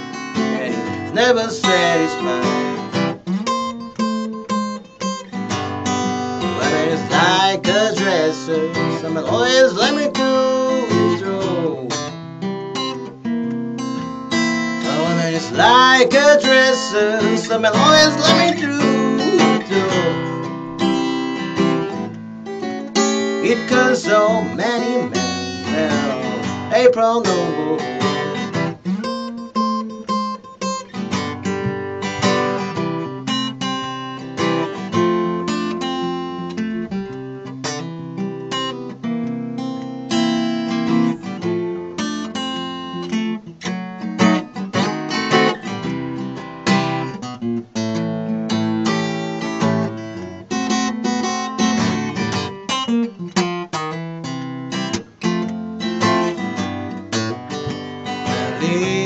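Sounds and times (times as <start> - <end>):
acoustic guitar blues playing: 0.0 - 59.0.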